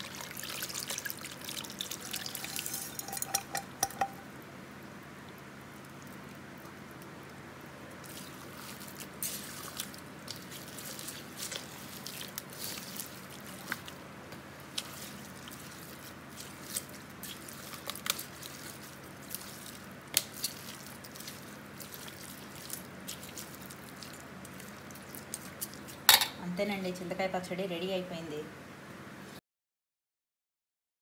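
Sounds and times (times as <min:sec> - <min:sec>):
spoon clinking against steel bowl: 0:02.1 - 0:04.3
wet squelching of paste: 0:08.0 - 0:26.1.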